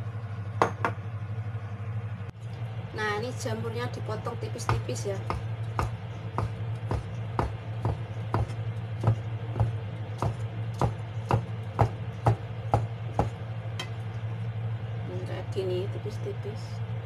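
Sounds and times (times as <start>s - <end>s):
low hum: 0.0s - 17.0s
knife chopping on wooden board: 4.7s - 13.4s.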